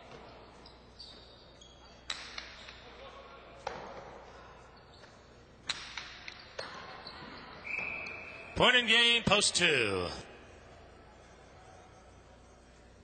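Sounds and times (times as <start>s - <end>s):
ball cracking against walls: 5.6s - 6.9s.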